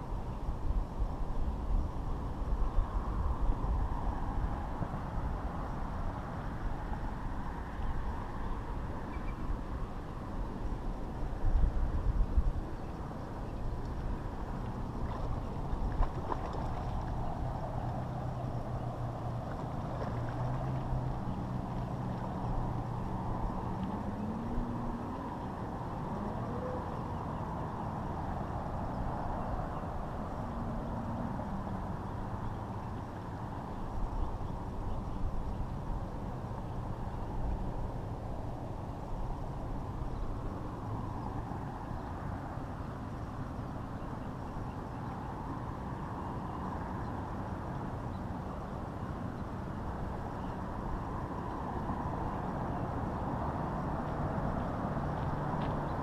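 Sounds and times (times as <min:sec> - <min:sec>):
low outdoor rumbling: 0:07.9 - 0:44.4.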